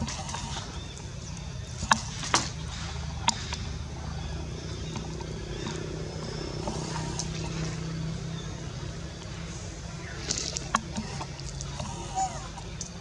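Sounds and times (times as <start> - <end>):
motor running: 2.7 - 13.0.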